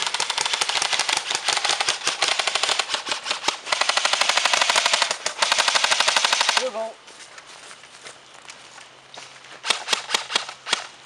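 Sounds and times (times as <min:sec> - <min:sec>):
airsoft rifle full-auto bursts: 0:00.0 - 0:06.8, 0:09.6 - 0:10.9.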